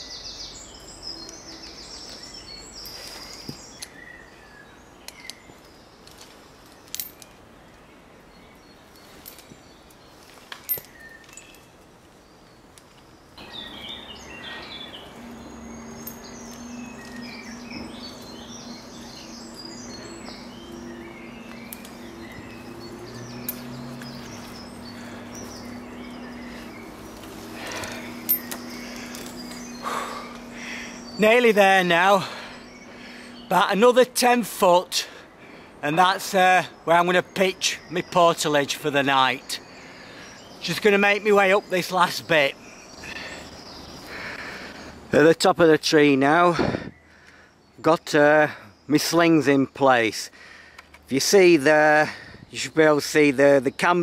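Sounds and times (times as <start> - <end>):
birds chirping: 0.0 - 54.0
clicks and knocks of climbing gear: 1.2 - 4.0, 5.0 - 7.8, 8.9 - 13.1, 16.0 - 18.3, 21.4 - 29.7, 50.7 - 51.1
steady low hum: 13.2 - 33.8.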